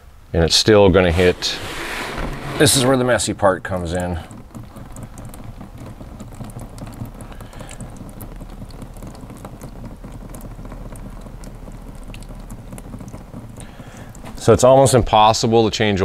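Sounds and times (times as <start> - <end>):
oil splattering onto drain pan: 3.8 - 14.5.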